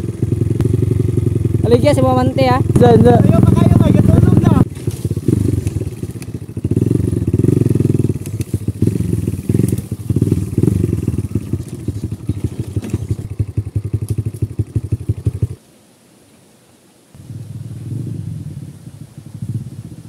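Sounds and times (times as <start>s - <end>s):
dirt bike engine running: 0.0s - 15.6s.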